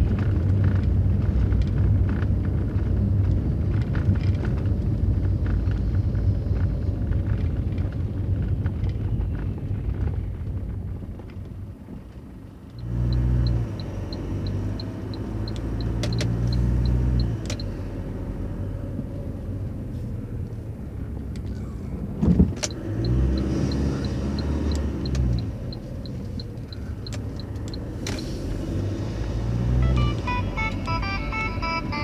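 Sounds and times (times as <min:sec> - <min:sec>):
car engine drone: 0:00.0 - 0:32.0
light regular ticking: 0:12.7 - 0:17.7, 0:22.6 - 0:28.2.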